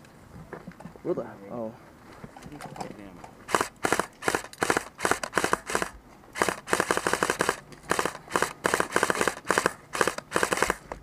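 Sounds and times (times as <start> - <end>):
airsoft rifle full-auto bursts: 3.5 - 10.9.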